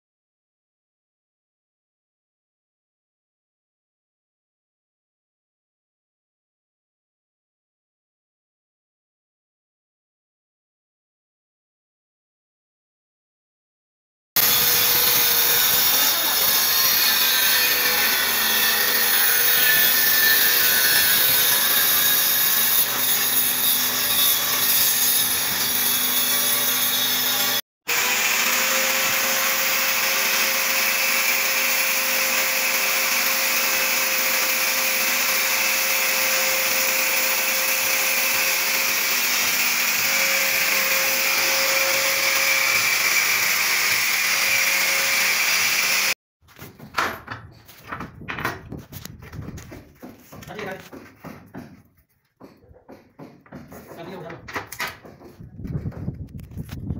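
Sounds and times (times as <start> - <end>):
angle grinder grinding: 14.4 - 46.2.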